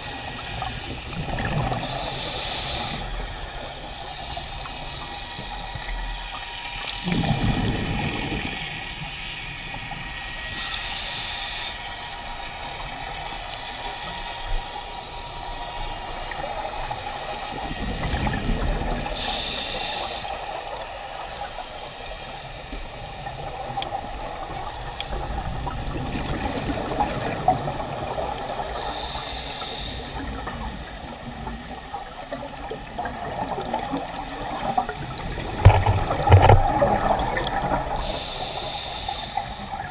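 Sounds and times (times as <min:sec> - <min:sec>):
exhaled bubbles rumbling: 0:00.0 - 0:02.3, 0:03.2 - 0:10.2, 0:16.1 - 0:19.3, 0:22.2 - 0:28.6, 0:30.3 - 0:38.2
regulator hissing inhalations: 0:01.8 - 0:03.6, 0:10.4 - 0:12.2, 0:19.1 - 0:21.9, 0:28.4 - 0:31.2, 0:34.2 - 0:35.3, 0:37.9 - 0:39.9.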